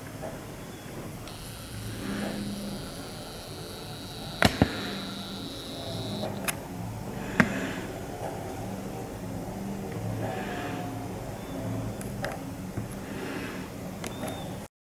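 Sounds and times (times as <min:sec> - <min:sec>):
low mechanical hum: 0:00.0 - 0:14.7
faint high whine: 0:01.2 - 0:06.5
sharp clicks: 0:01.2 - 0:06.6.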